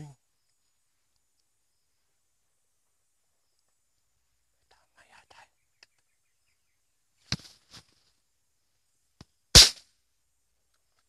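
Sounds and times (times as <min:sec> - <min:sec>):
silenced rifle shots: 0:09.6 - 0:09.8.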